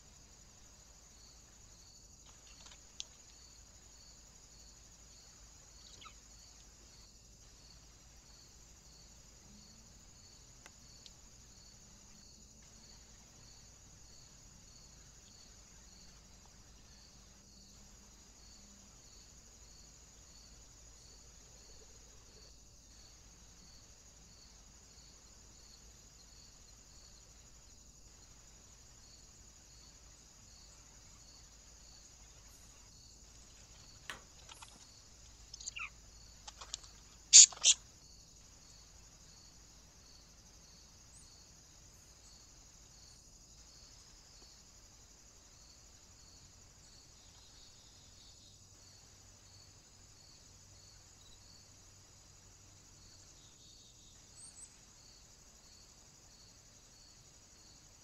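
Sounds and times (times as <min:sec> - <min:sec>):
insect chorus chirping: 0:00.0 - 0:58.0.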